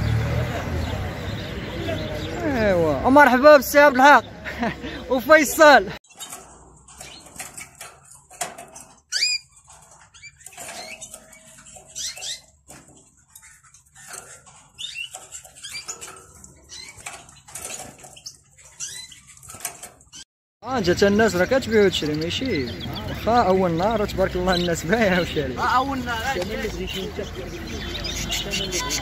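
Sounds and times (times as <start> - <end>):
birds chirping and calling: 0.0 - 29.0
small knocks and rustles: 6.0 - 20.3.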